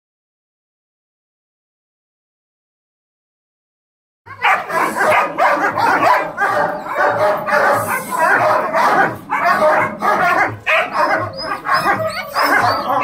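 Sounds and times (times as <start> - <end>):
large dog barking: 4.3 - 13.0.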